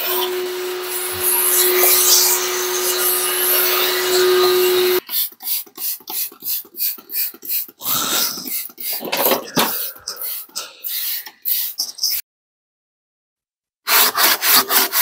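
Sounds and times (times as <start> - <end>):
shop vacuum running: 0.0 - 5.0
spray bottle squirting: 5.0 - 12.2.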